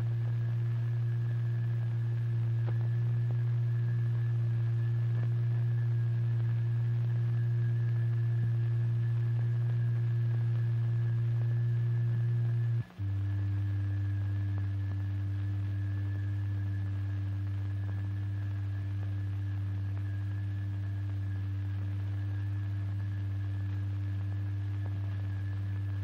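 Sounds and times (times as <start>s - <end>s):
low electronic tone: 0.0s - 26.0s.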